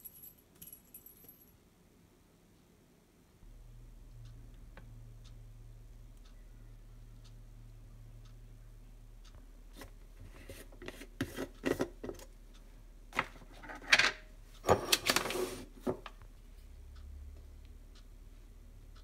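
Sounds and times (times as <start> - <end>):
plastic lid scraping and clicking: 9.8 - 12.3.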